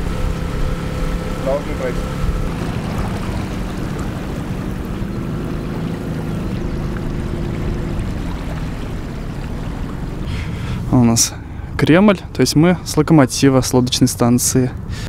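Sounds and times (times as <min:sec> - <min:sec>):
outboard motor running: 0:00.0 - 0:11.8.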